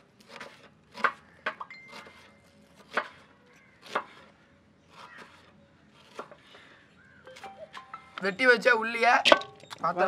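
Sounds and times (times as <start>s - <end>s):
knife chopping onion on board: 3.8s - 4.2s.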